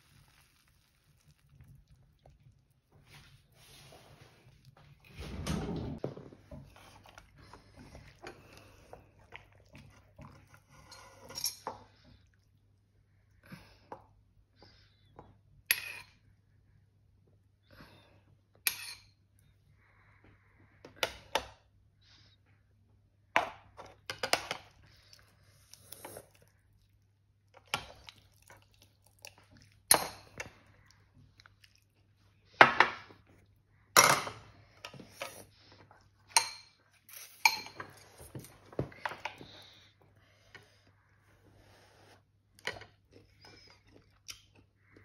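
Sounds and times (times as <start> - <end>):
utensils clinking on pot and bowl: 36.3 - 39.2.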